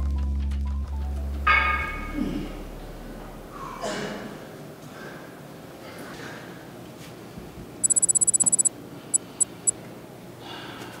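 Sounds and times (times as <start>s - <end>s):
high-pitched electronic beeping: 7.8s - 9.5s.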